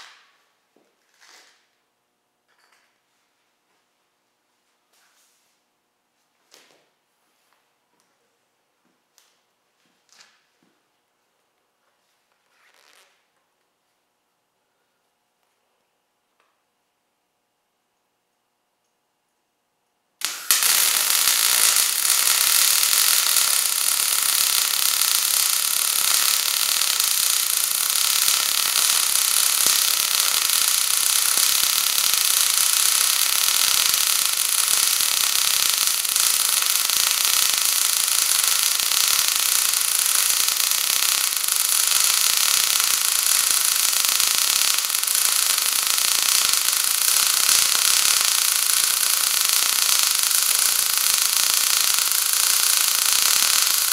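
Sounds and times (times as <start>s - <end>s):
welding arc crackling: 0.0s - 1.8s, 20.2s - 53.9s.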